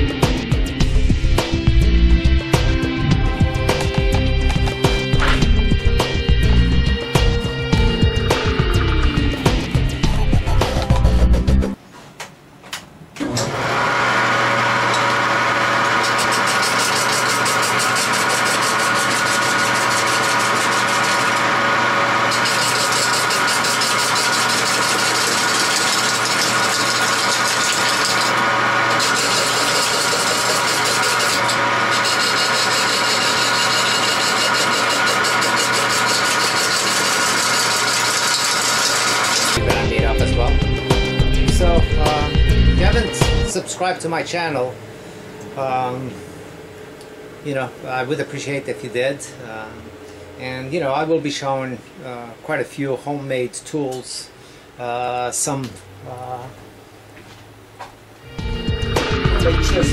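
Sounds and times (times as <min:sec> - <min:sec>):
lathe motor hum: 0:13.2 - 0:39.6
tool ticking on spinning wood: 0:16.0 - 0:21.4, 0:22.3 - 0:39.6.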